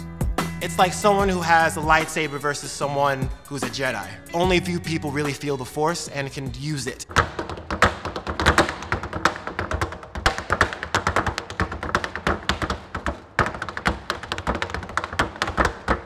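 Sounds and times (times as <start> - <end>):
tap shoes on wooden board: 7.1 - 16.0.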